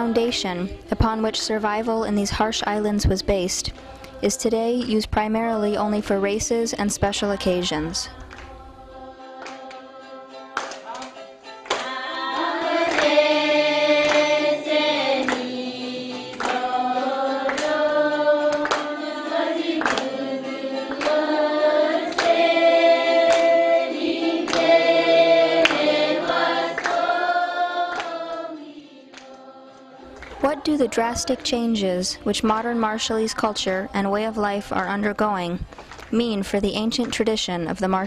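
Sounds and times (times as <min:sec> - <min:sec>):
group singing long notes: 0:03.7 - 0:04.8, 0:07.2 - 0:32.0.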